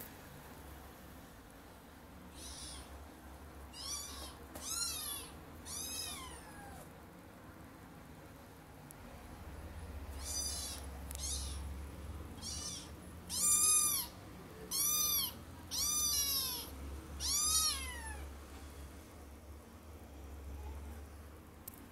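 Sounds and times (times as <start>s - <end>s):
kitten meowing: 2.3s - 2.9s, 3.7s - 6.8s, 10.1s - 11.7s, 12.4s - 18.3s.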